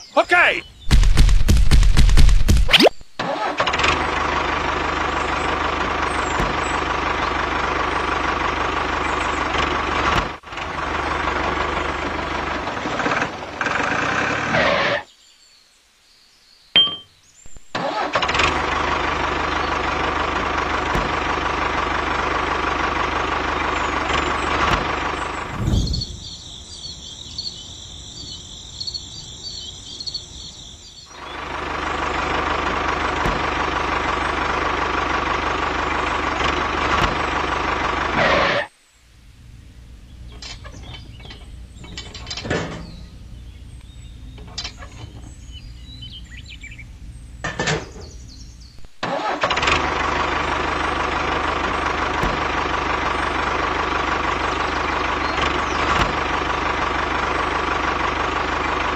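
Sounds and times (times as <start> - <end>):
small engine droning: 3.2 - 15.1, 17.7 - 38.7, 39.4 - 58.9
high chirping: 16.7 - 17.7, 23.8 - 31.4
low hum: 18.5 - 28.3.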